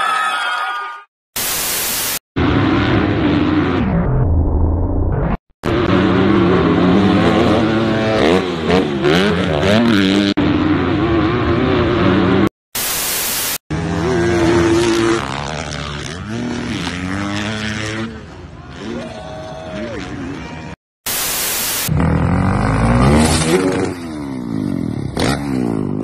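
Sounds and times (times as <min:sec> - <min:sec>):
loud static hiss: 0:01.4 - 0:02.2, 0:12.8 - 0:13.6, 0:21.1 - 0:21.9
dirt bike engine revving: 0:05.6 - 0:12.5, 0:13.7 - 0:19.1, 0:21.7 - 0:26.0.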